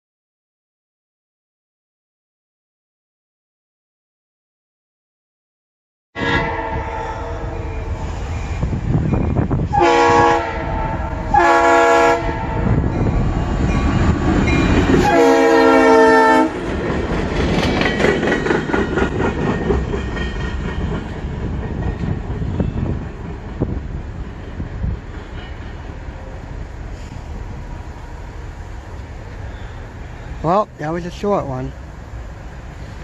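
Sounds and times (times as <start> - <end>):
train air horn blasts: 6.2 - 8.3, 9.7 - 12.9, 14.9 - 16.6
diesel locomotive engine rumble: 6.2 - 33.0
train wheels rattling on rails: 7.3 - 33.0.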